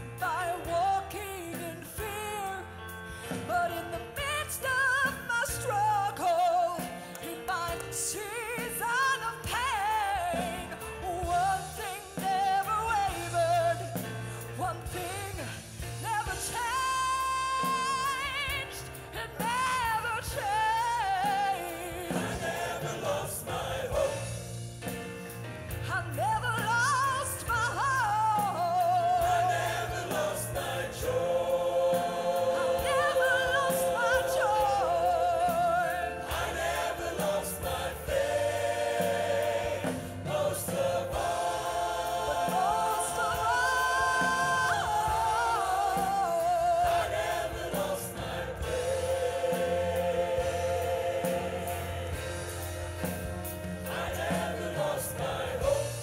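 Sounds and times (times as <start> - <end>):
band with bass and drums: 0.0 - 56.0
choir singing: 8.0 - 14.1, 16.2 - 25.0, 27.4 - 56.0.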